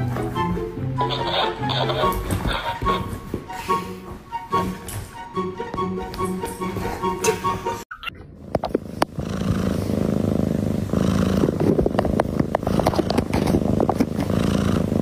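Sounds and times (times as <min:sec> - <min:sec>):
cat purring: 0:08.4 - 0:15.0.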